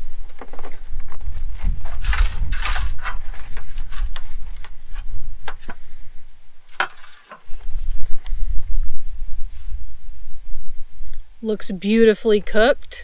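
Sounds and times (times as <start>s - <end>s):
wind rumble on microphone: 0.0s - 6.8s, 7.4s - 13.0s
knife scraping a metal plate: 2.0s - 4.2s.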